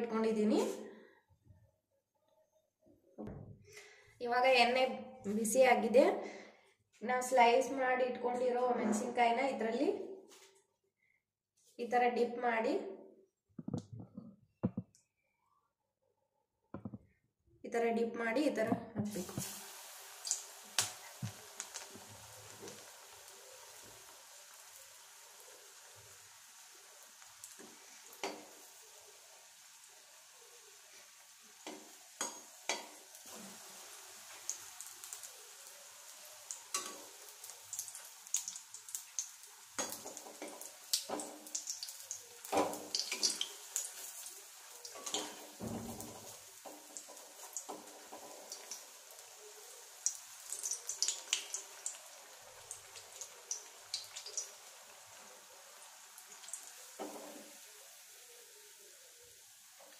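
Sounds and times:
deep-frying oil sizzling: 19.1s - 59.9s.

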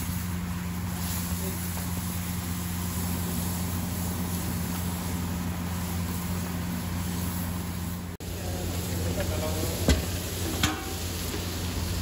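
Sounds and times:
even hiss: 0.0s - 12.0s
low mechanical hum: 0.0s - 12.0s.

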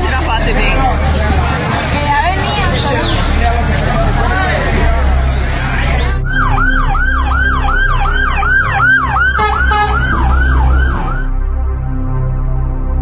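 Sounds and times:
low engine rumble: 0.0s - 11.8s
fire truck siren yelping: 4.9s - 11.4s.

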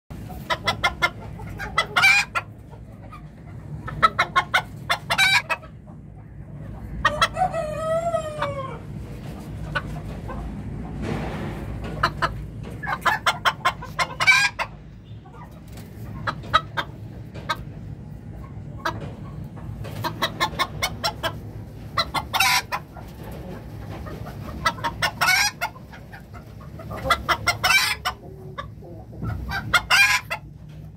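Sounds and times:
chickens clucking: 0.1s - 30.9s
chicken squawking: 0.3s - 5.8s, 6.8s - 8.9s, 12.0s - 17.0s, 20.0s - 30.5s
rooster crowing: 7.4s - 8.8s.

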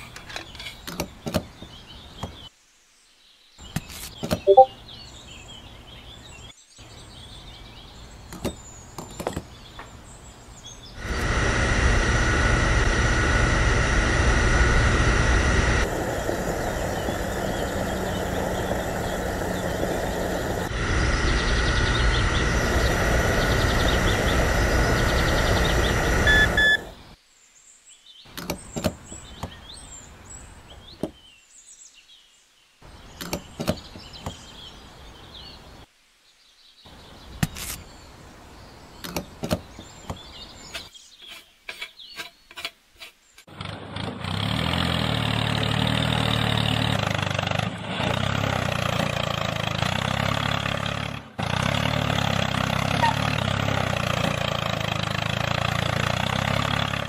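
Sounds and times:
faint bird chirps: 1.8s - 9.8s
loud engine-like running: 11.0s - 27.0s, 43.5s - 57.0s
small motor whining: 11.0s - 27.1s.

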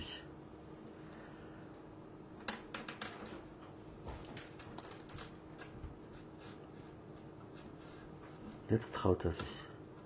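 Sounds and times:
faint steady hum: 0.0s - 10.0s
kitten scratching sisal post: 4.7s - 8.7s.

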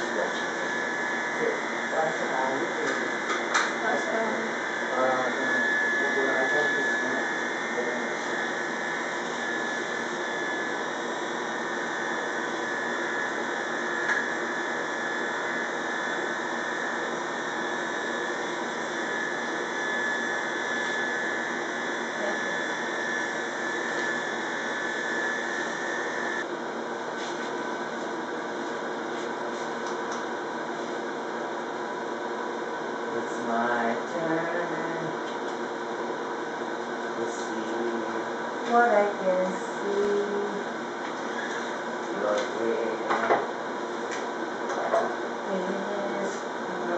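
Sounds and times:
electric hair clippers buzzing: 0.0s - 26.5s.

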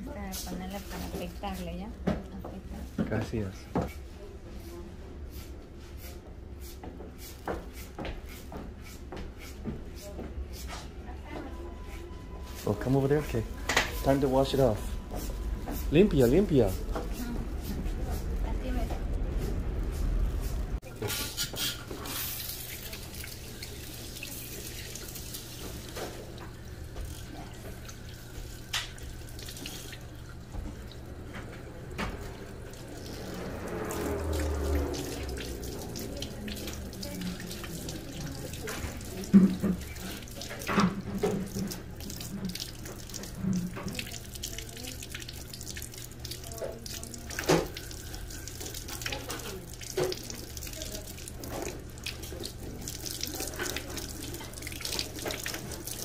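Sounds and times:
water spraying into sink: 12.4s - 56.0s.

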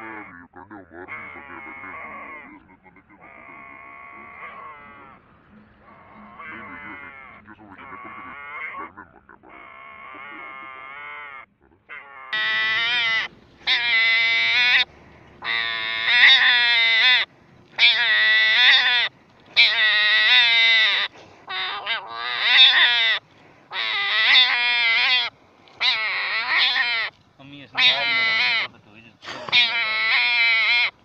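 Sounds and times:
hedgehog bleat-like cries: 1.0s - 2.4s, 6.2s - 17.2s, 17.8s - 27.1s, 27.8s - 28.7s, 29.4s - 30.9s.

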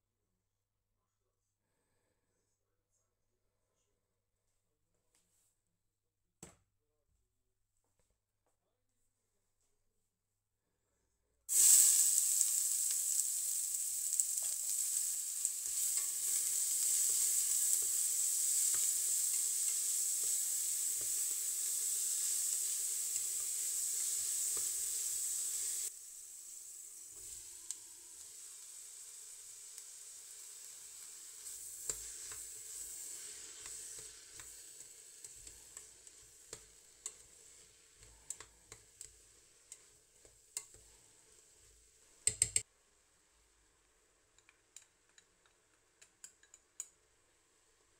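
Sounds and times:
onions sizzling in hot oil: 11.5s - 42.7s.

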